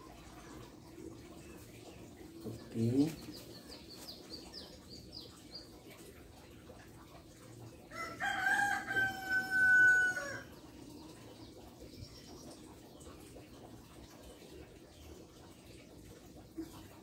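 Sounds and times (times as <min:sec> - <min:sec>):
rooster crowing: 0:07.9 - 0:10.5.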